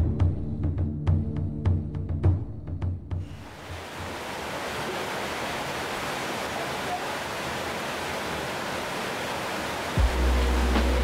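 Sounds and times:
steady rushing hiss: 0:03.2 - 0:11.0.

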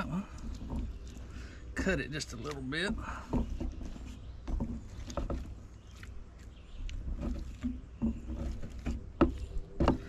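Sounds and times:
knife scraping on board: 0:03.2 - 0:06.1, 0:07.1 - 0:10.0.

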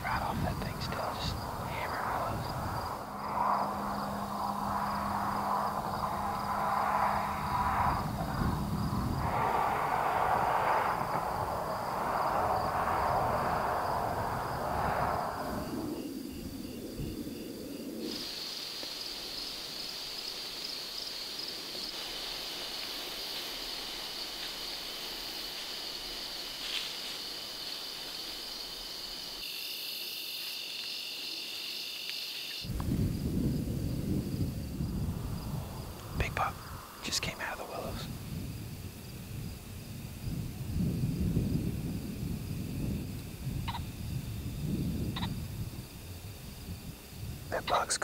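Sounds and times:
insects trilling high-pitched: 0:00.0 - 0:48.0
lower insect trill: 0:00.0 - 0:48.0
loud rushing noise: 0:00.9 - 0:15.9.

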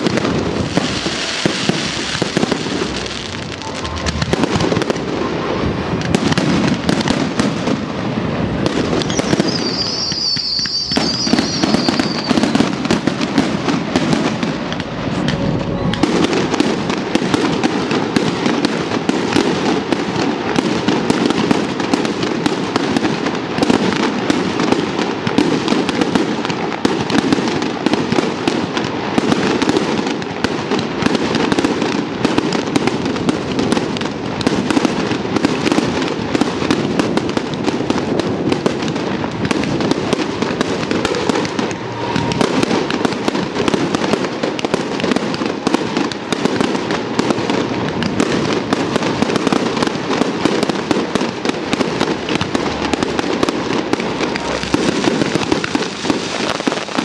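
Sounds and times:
fireworks bursting and crackling: 0:00.0 - 0:57.0
high wavering whistle: 0:09.1 - 0:12.6.

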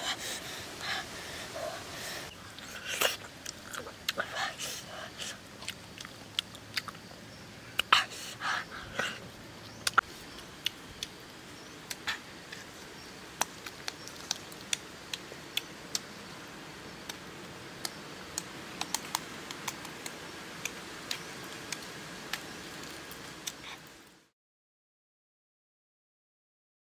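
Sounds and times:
background hiss: 0:00.0 - 0:24.3
eggshells cracking and peeling: 0:13.3 - 0:16.1, 0:17.8 - 0:23.6.

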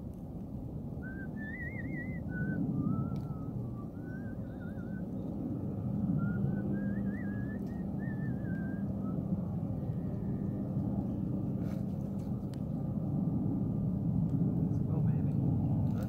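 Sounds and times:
person whistling a tune: 0:01.0 - 0:05.1, 0:06.1 - 0:09.3.

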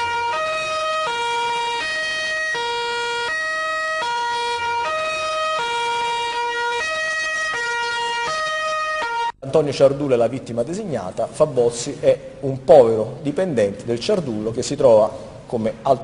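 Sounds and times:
two-tone emergency siren: 0:00.0 - 0:09.4.

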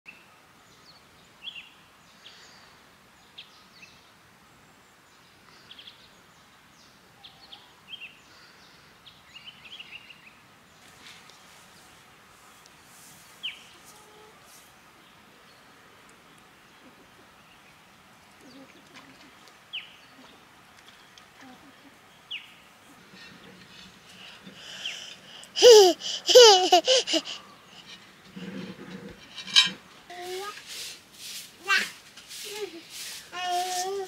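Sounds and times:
faint outdoor hiss: 0:00.1 - 0:34.0
small birds chirping: 0:15.0 - 0:29.5.

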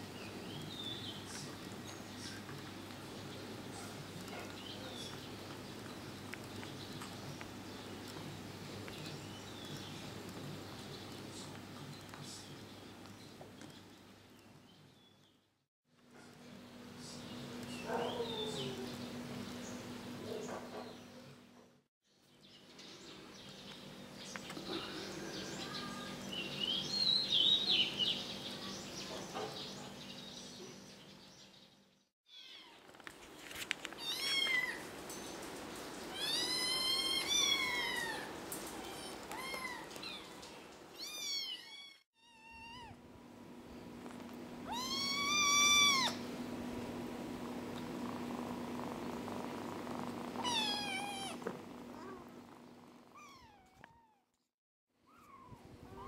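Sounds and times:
kittens mewing: 0:44.6 - 0:46.3, 0:48.0 - 0:52.4, 0:53.1 - 0:54.2.

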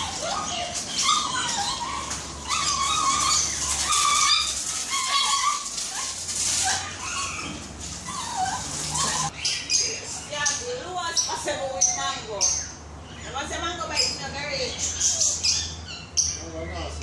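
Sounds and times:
small dog whining: 0:00.0 - 0:09.4.

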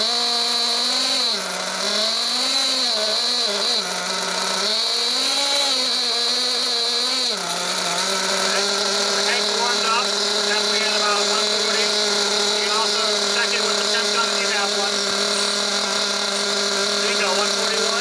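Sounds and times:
nitro engine revving: 0:00.0 - 0:18.0
steady high whine: 0:07.3 - 0:18.0.

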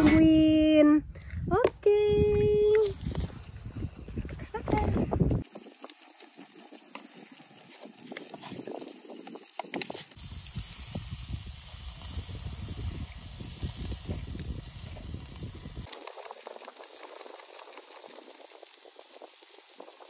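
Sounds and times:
skewers sizzling on a grill: 0:05.4 - 0:20.0.

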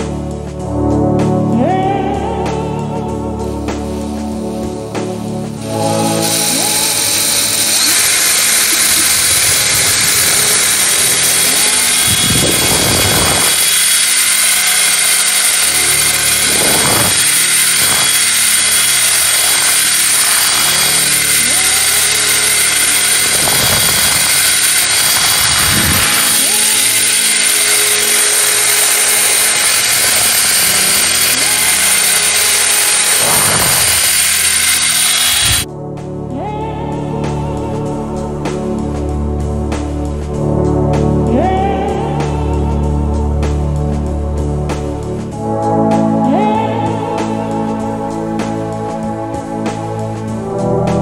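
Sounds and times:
drill motor whir: 0:05.5 - 0:35.7.

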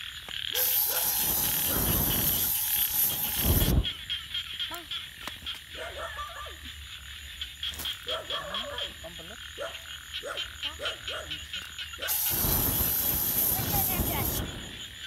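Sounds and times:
frogs croaking: 0:00.0 - 0:15.0
loud rushing hiss: 0:00.6 - 0:04.0, 0:12.0 - 0:15.0.

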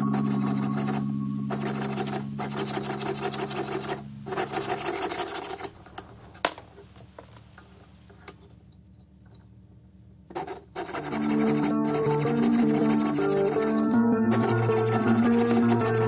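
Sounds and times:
saw rasping through metal sheet: 0:00.0 - 0:05.8, 0:10.3 - 0:16.0.

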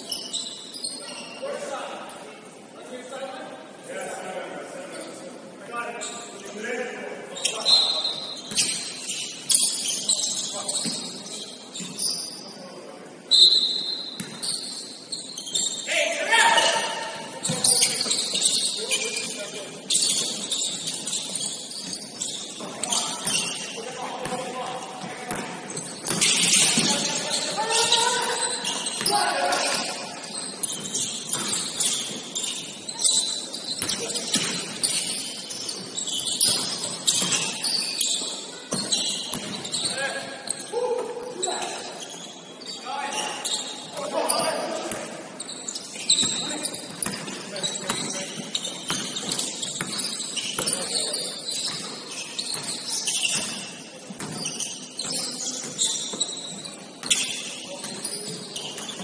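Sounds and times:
shoes squeaking on hardwood floor: 0:00.0 - 0:01.8, 0:07.3 - 0:12.7, 0:13.3 - 0:59.0
ball bouncing: 0:14.2 - 0:14.5, 0:30.6 - 0:32.2, 0:33.8 - 0:35.2, 0:38.7 - 0:39.6, 0:46.2 - 0:50.9.

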